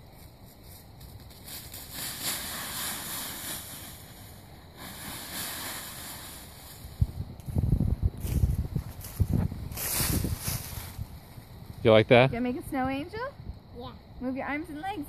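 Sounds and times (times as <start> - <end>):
dry leaves rustling and crunching: 0.2 - 7.0, 8.2 - 11.1.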